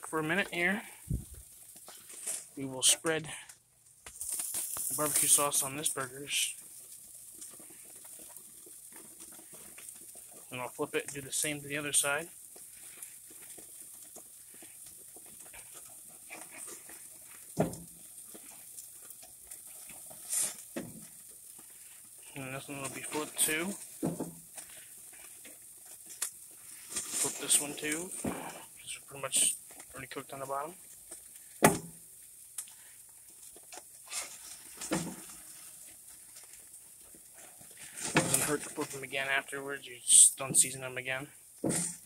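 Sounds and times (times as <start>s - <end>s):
burger patties sizzling: 0.0s - 42.0s
metal spatula on grill grates: 19.6s - 21.3s.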